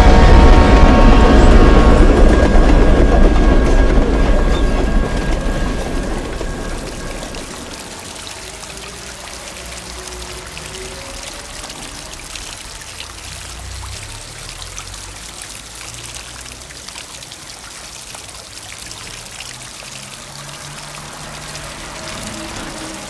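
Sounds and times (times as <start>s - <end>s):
fountain water splashing: 4.6s - 23.0s.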